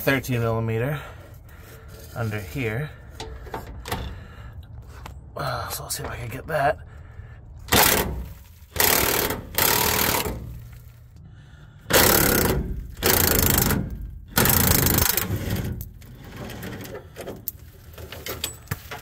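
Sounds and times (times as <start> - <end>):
impact wrench hammering on bolt: 7.7 - 10.4, 11.9 - 15.3.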